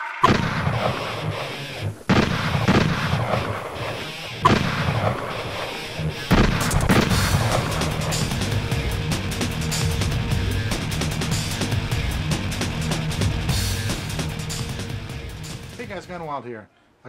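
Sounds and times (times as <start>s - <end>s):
heavy gunshots with echoing tail: 0.2s - 1.5s, 2.1s - 8.8s.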